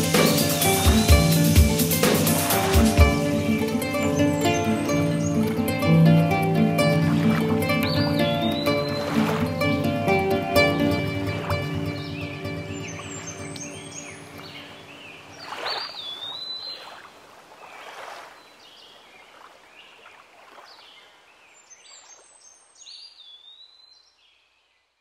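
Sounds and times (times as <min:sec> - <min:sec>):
gliding high chirping calls: 0:07.7 - 0:09.3.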